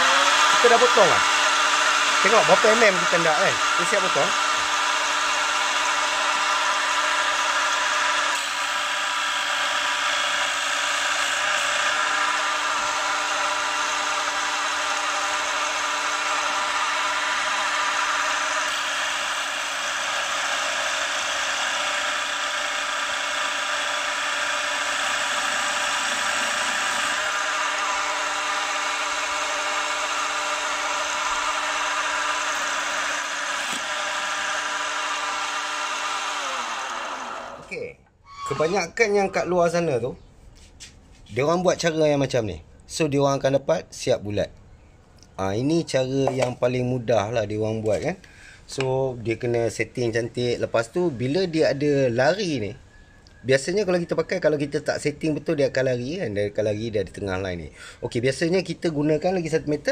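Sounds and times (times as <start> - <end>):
cutter boring into wood: 0.0 - 39.5
mill-drill motor humming: 0.0 - 39.5.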